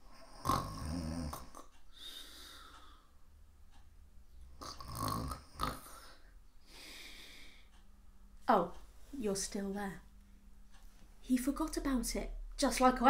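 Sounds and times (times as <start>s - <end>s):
woman snoring: 0.2s - 2.7s, 4.6s - 6.3s
breathy exhale: 1.9s - 3.1s, 6.0s - 7.8s.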